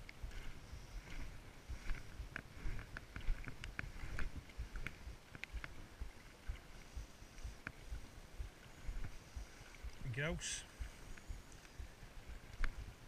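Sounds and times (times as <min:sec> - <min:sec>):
water sloshing around legs: 0:00.0 - 0:13.0
wind rumble on microphone: 0:00.0 - 0:13.0
short sharp high ticks: 0:08.4 - 0:12.8.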